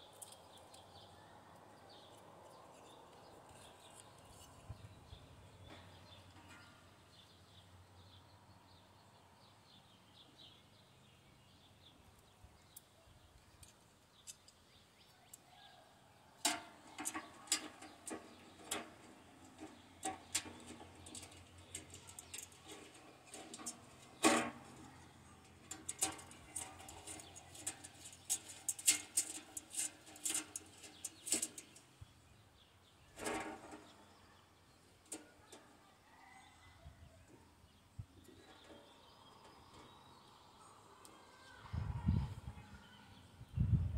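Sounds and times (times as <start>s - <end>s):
sheet metal parts clinking: 16.4s - 31.8s.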